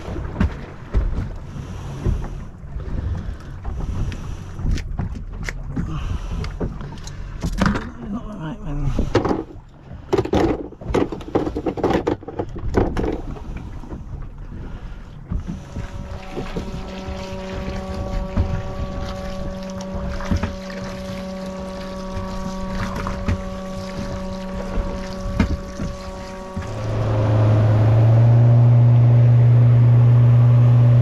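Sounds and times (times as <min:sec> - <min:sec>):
steady hum: 0:13.1 - 0:31.0.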